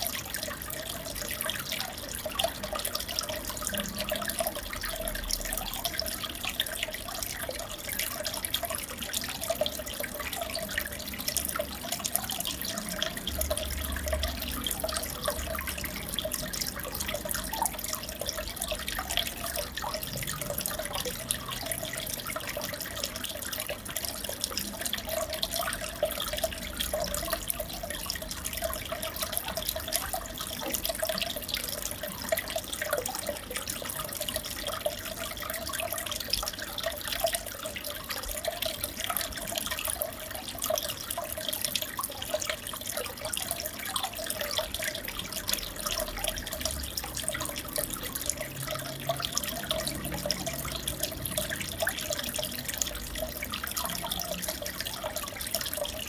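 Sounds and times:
aquarium water trickling and splashing: 0:00.0 - 0:56.0.

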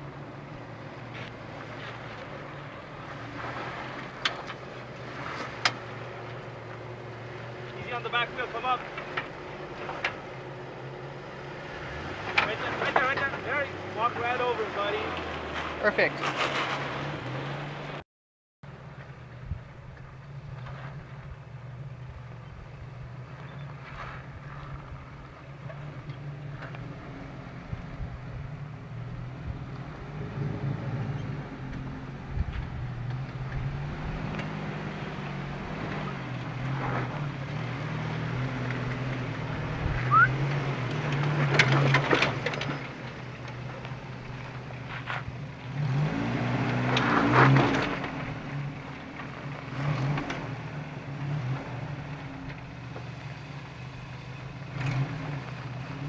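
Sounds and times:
truck engine at low revs: 0:00.0 - 0:18.0, 0:18.6 - 0:56.0
short squeak: 0:40.1 - 0:40.4.

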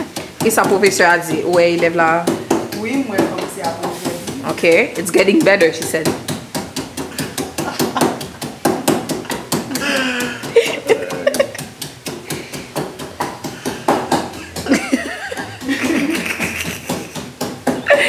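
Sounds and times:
pestle pounding in a mortar: 0:00.0 - 0:18.0
voices laughing and talking: 0:09.7 - 0:11.6.

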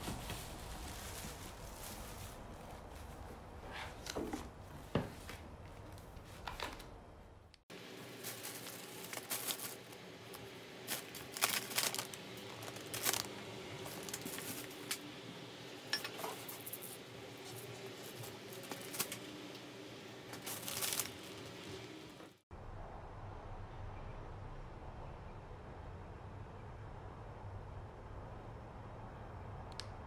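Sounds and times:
plastic bags rustling: 0:00.0 - 0:06.3, 0:07.7 - 0:15.2, 0:15.8 - 0:22.2
packages knocking together: 0:10.9 - 0:13.3.

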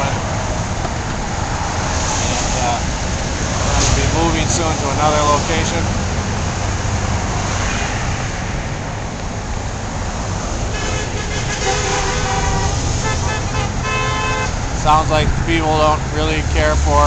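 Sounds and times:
car horns honking: 0:00.0 - 0:01.9, 0:10.6 - 0:17.0
road traffic passing: 0:00.0 - 0:17.0.

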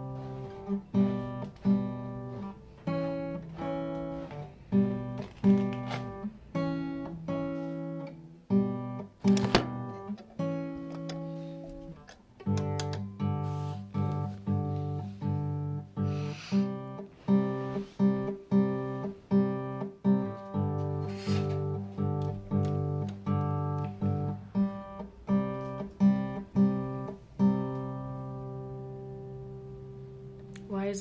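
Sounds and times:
guitar chords strummed: 0:00.0 - 0:30.6.

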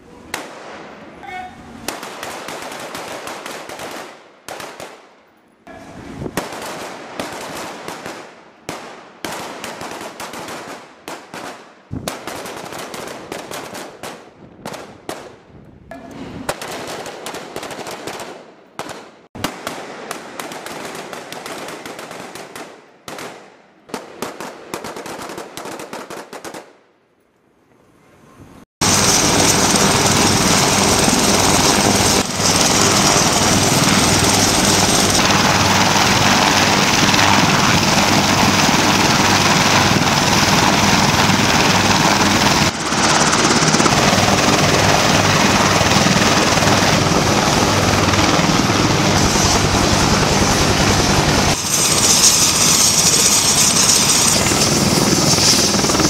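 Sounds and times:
helicopter engines and rotor: 0:28.8 - 0:56.0.

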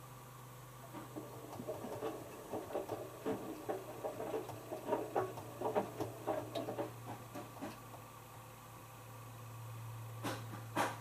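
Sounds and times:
washing machine motor humming: 0:00.8 - 0:08.2
laundry tumbling in drum: 0:00.9 - 0:08.0.

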